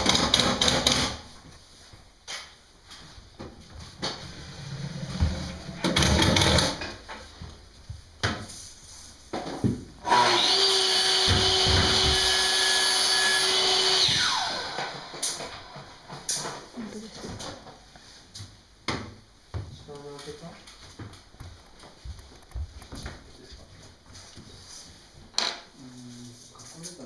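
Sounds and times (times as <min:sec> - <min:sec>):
electric drill running: 0:10.0 - 0:15.8.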